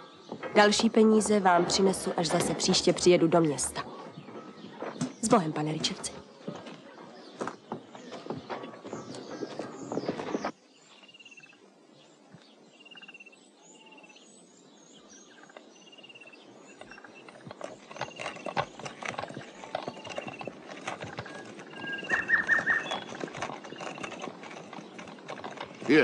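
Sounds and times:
horse hooves clip-clopping: 0.0s - 10.6s, 16.3s - 26.0s
birds chirping: 0.0s - 26.0s.

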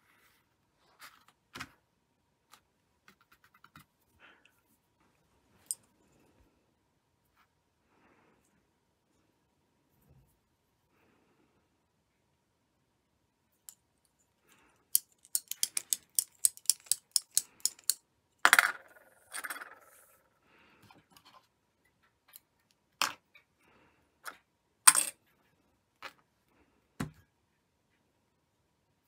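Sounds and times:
scrape: 0.0s - 1.3s.

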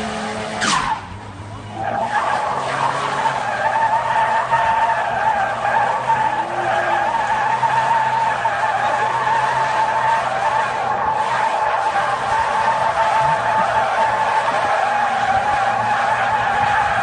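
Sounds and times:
car engine drone: 0.0s - 17.0s
tyres squealing: 1.7s - 17.0s.

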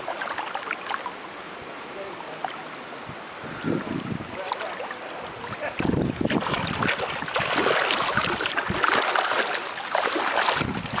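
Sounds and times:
dog splashing in water: 6.3s - 11.0s.

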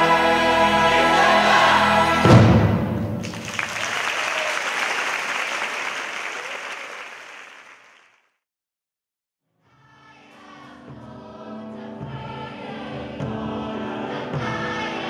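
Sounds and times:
choir music: 0.0s - 3.6s, 9.7s - 15.0s
crowd applauding: 3.2s - 8.3s.

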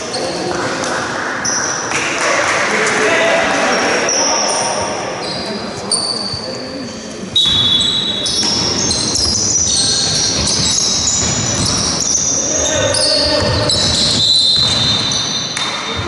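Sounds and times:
sneakers squeaking on court: 4.5s - 6.7s, 7.3s - 16.0s
basketball bouncing: 8.3s - 16.0s.

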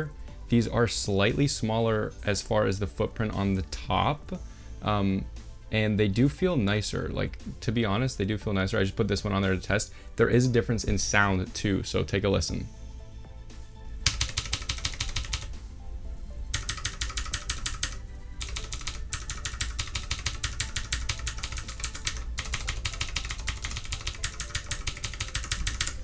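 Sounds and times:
mechanical keyboard typing: 14.0s - 15.5s, 16.5s - 26.0s.

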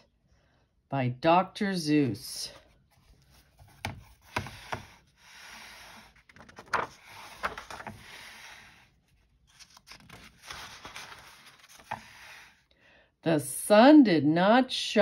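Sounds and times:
book pages rustling: 2.6s - 12.6s
pages flapping and tapping: 3.1s - 5.0s, 6.0s - 8.3s, 9.4s - 12.4s.

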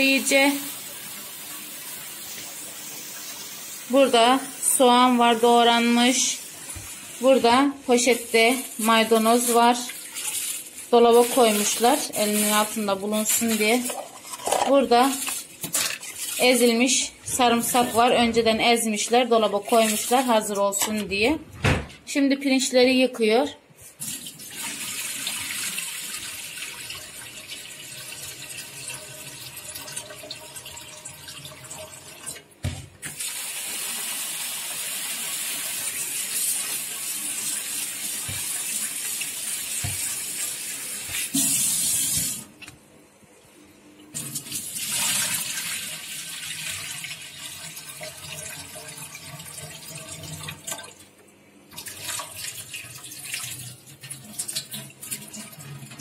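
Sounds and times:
rinse water swishing: 5.6s - 20.8s.

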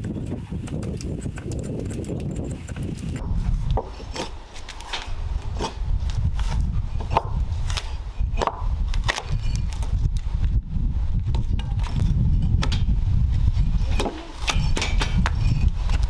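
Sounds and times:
bark scraping and cracking: 7.1s - 9.9s.

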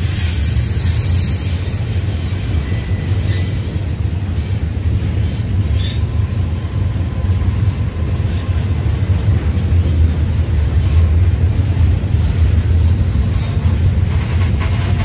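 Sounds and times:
train wheels rumbling on rails: 0.0s - 15.0s
faint wheel squeal: 5.3s - 6.5s.

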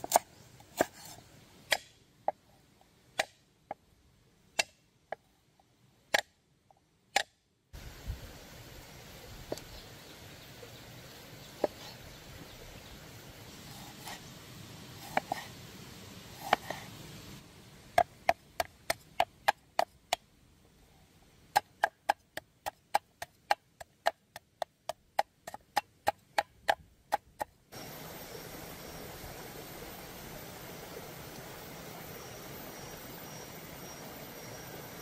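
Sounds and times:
knife chopping on wooden board: 15.0s - 15.4s, 16.4s - 16.8s.

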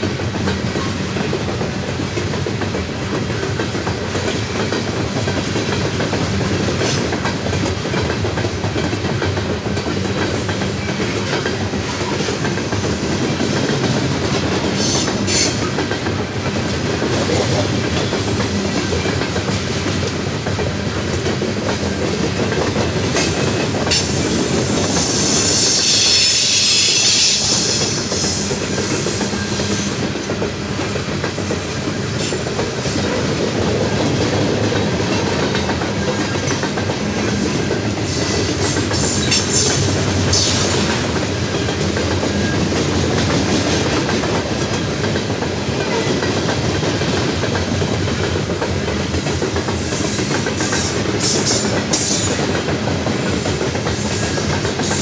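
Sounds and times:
wheels clacking over rail joints: 0.0s - 25.3s, 27.7s - 55.0s
freight train rolling on rails: 0.0s - 55.0s
high-pitched wheel squeal: 25.0s - 27.9s.

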